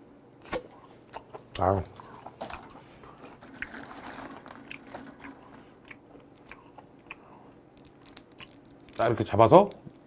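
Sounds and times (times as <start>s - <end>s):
mouth chewing: 0.4s - 3.8s, 4.4s - 9.1s.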